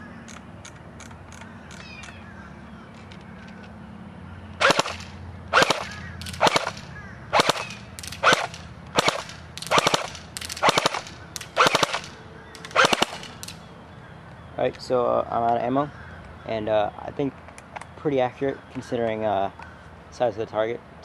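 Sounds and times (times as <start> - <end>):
airsoft rifle firing bursts: 4.6 - 13.5.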